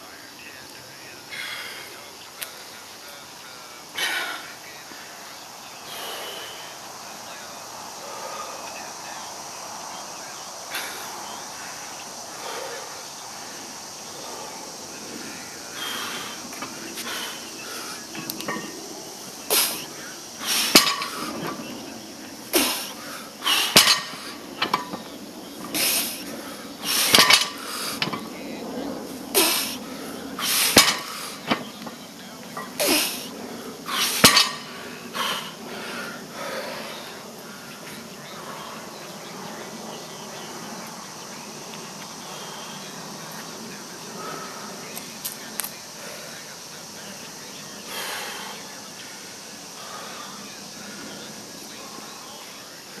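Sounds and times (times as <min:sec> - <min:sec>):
faint insect buzzing: 0:00.0 - 0:53.0
outdoor background hiss: 0:00.0 - 0:53.0
loud forceful breaths: 0:01.2 - 0:53.0
weight plates clinking down: 0:18.2 - 0:18.8, 0:20.6 - 0:21.6, 0:23.5 - 0:26.0, 0:27.0 - 0:28.3, 0:30.4 - 0:31.8, 0:34.0 - 0:34.7.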